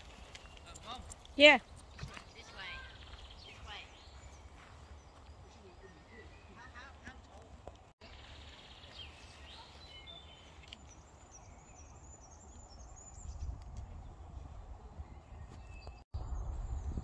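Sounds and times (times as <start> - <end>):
small birds chirping: 0.0 - 17.0
wind rumbling on microphone: 12.2 - 17.0.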